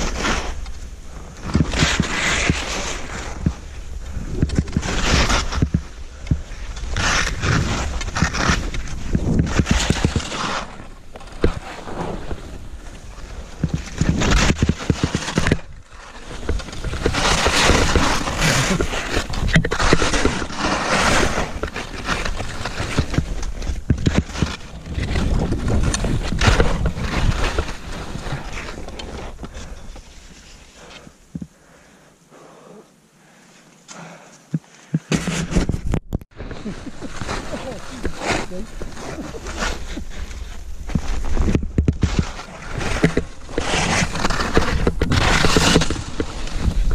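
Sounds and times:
skis scraping over snow: 0:00.0 - 0:31.5, 0:36.4 - 0:46.9
wind rumble on microphone: 0:11.2 - 0:29.8, 0:35.5 - 0:46.9.

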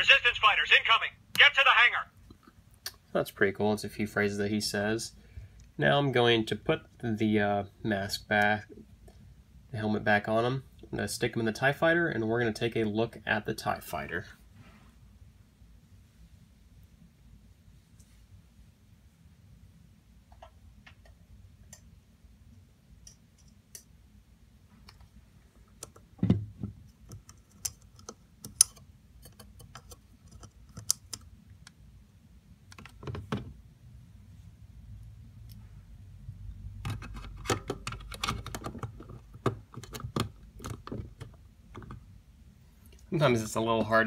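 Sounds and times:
plastic clicking and rattling: 0:36.8 - 0:42.0.

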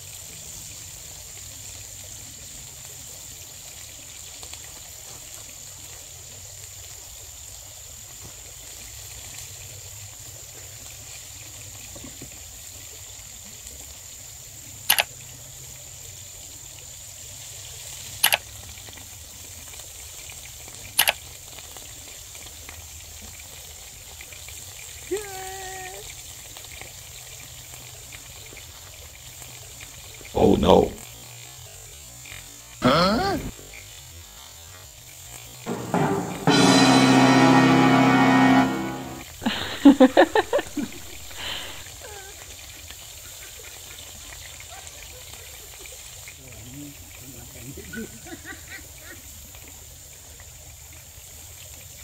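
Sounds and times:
outdoor hiss: 0:00.0 - 0:52.0
high-pitched tone: 0:35.7 - 0:41.7.

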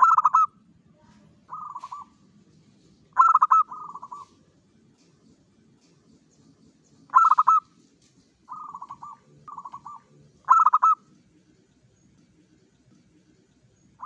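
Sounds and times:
dove cooing: 0:00.0 - 0:00.6, 0:01.5 - 0:02.2, 0:03.1 - 0:04.4, 0:07.1 - 0:07.7, 0:08.5 - 0:11.1.

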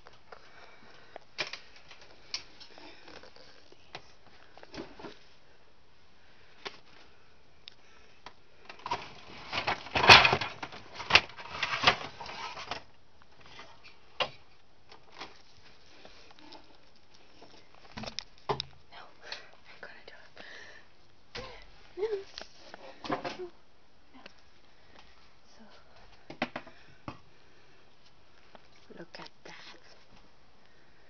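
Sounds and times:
handling rustling and clattering: 0:08.6 - 0:18.8.

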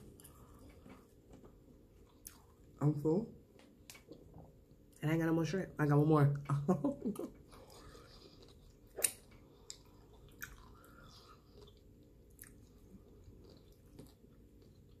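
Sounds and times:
close-up chewing: 0:07.3 - 0:15.0.

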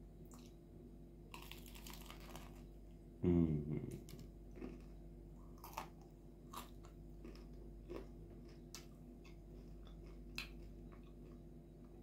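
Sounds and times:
low steady hum: 0:00.0 - 0:12.0
chewing crispy chicken: 0:01.3 - 0:02.7, 0:03.8 - 0:12.0.

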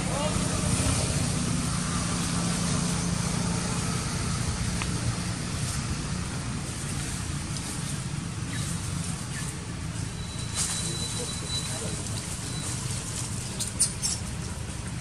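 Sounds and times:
steady low rumble: 0:00.0 - 0:10.8.

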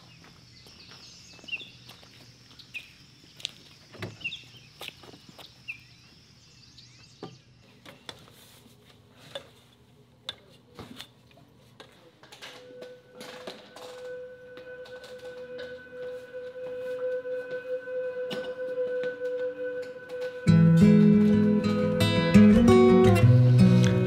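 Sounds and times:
footsteps: 0:00.0 - 0:06.2, 0:10.4 - 0:21.6
small birds chirping: 0:00.0 - 0:08.5.

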